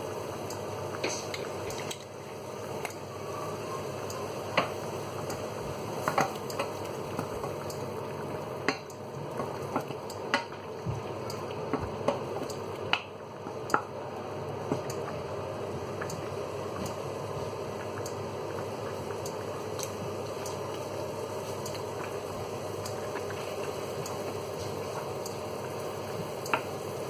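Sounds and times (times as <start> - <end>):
steady sizzle: 0.0 - 27.0.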